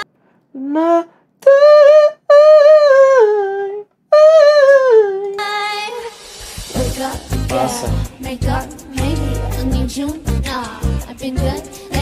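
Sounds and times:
person humming high notes: 0:00.6 - 0:05.4, 0:06.8 - 0:08.2.

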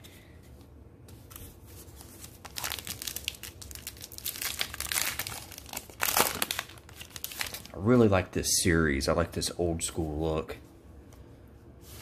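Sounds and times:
foil wrapper crinkling: 0:02.3 - 0:07.8
foil wrapper ripping: 0:02.4 - 0:07.8.

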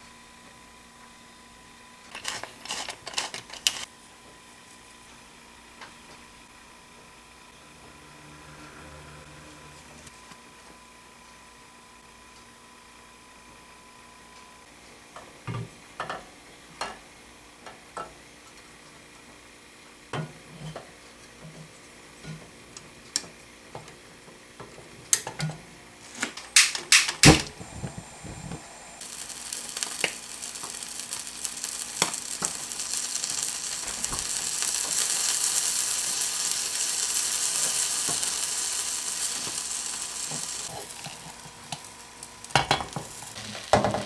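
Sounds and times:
gas burner hiss: 0:02.0 - 0:03.9, 0:26.0 - 0:44.0
butter and cheese sizzling: 0:02.1 - 0:03.9, 0:27.5 - 0:44.0
gas burner igniter clicks: 0:29.5 - 0:36.9.

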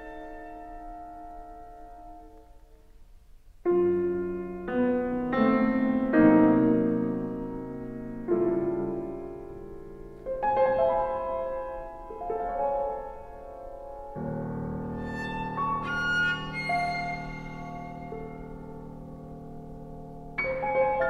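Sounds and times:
piano chords: 0:00.0 - 0:02.6, 0:03.7 - 0:21.0
bowed viola notes: 0:14.9 - 0:18.9.

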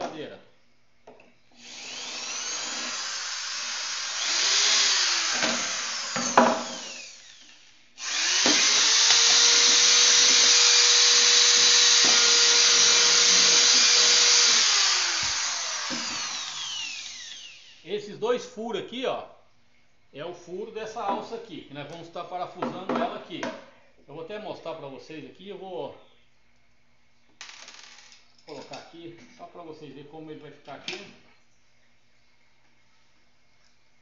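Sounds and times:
electric drill boring into plastic pipe: 0:01.5 - 0:17.9.

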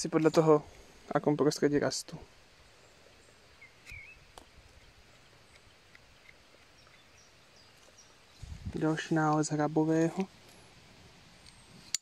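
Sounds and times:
bird chirp: 0:02.6 - 0:09.8.

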